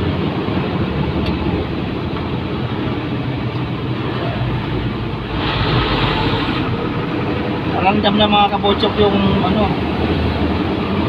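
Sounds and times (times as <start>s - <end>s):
road noise: 0.0s - 11.0s
truck engine running under load: 0.0s - 11.0s
loud hiss: 5.3s - 6.8s.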